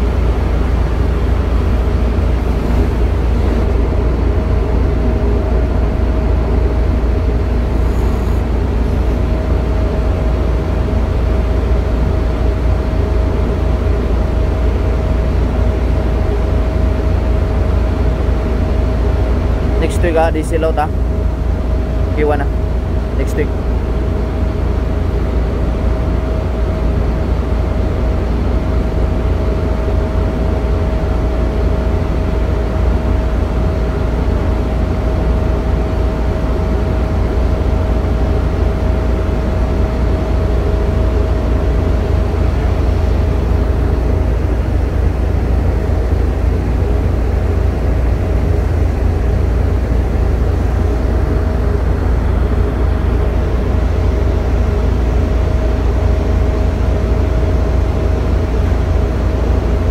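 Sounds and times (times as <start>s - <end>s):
heavy machinery rumbling: 0.0s - 5.9s
constant machine whine: 0.0s - 59.9s.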